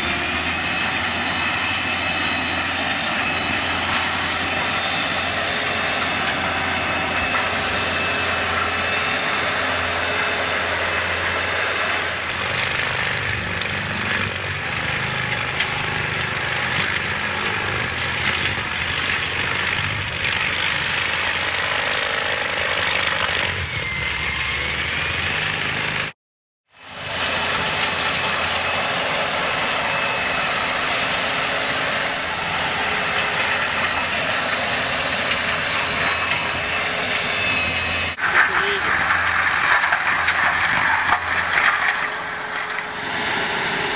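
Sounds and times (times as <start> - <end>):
tractor engine under load: 0.0 - 26.1, 26.8 - 43.9
mulcher rotor grinding: 10.6 - 24.0, 27.3 - 43.9.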